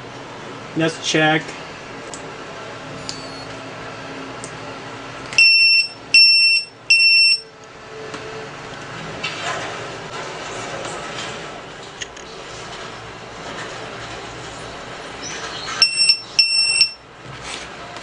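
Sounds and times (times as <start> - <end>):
high-pitched alarm beeps: 5.4 - 7.5, 15.8 - 17.0.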